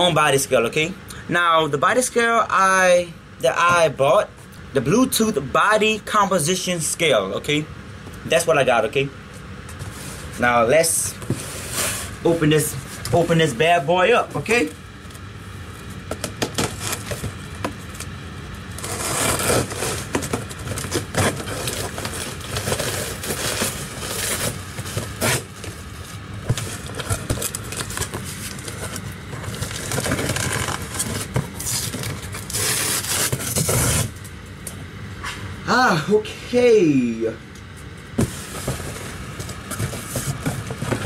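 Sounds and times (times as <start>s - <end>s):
cardboard scraping and rustling: 11.1s - 13.2s, 15.9s - 18.1s, 18.8s - 34.2s, 38.1s - 41.0s.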